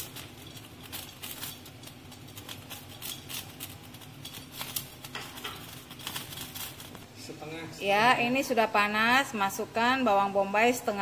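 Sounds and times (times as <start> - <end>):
oil crackling and popping: 0.0 - 7.2.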